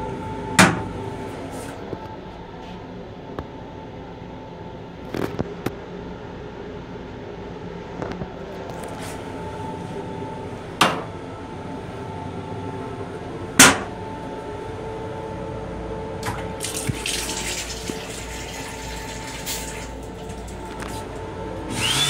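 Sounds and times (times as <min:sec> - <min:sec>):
steady hum: 0:00.0 - 0:22.0
faucet running water into sink: 0:16.6 - 0:20.6.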